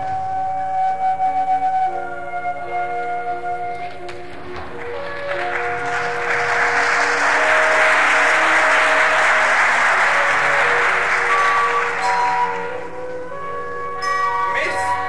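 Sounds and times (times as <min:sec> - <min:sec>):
instrumental stage musical music: 0:00.0 - 0:15.0
audience applauding: 0:04.5 - 0:13.1.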